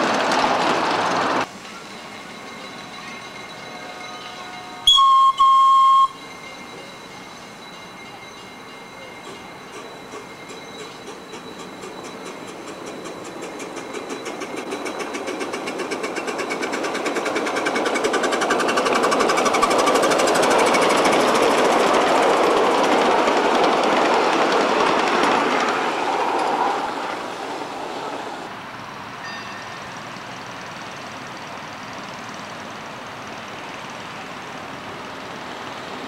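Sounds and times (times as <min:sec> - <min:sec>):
small steam locomotive passing: 0:00.0 - 0:36.0.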